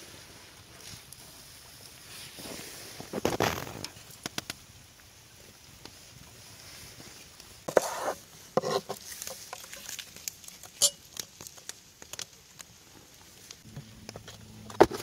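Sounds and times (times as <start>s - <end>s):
rustling scrapes: 6.6s - 11.0s.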